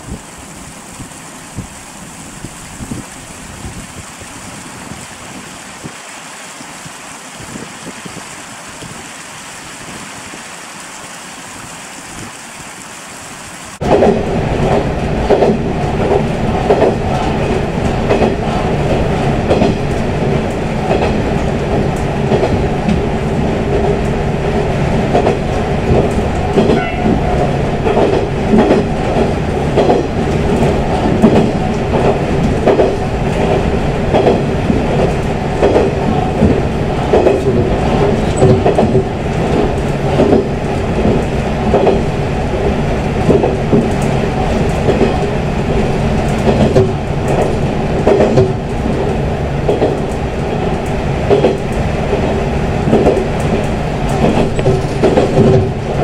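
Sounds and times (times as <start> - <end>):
wheels clacking over rail joints: 13.8 - 56.0.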